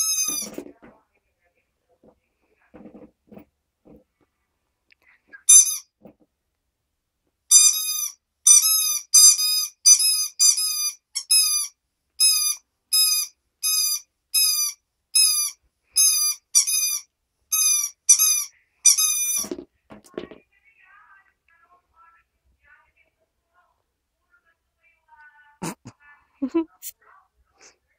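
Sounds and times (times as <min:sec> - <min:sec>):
rubber toy squeaking: 0:00.0 - 0:00.7, 0:05.4 - 0:06.0, 0:07.5 - 0:19.6.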